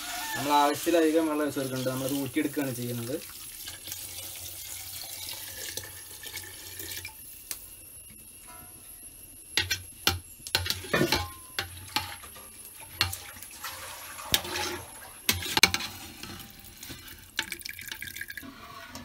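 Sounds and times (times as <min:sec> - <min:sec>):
water sloshing: 0:13.0 - 0:15.6.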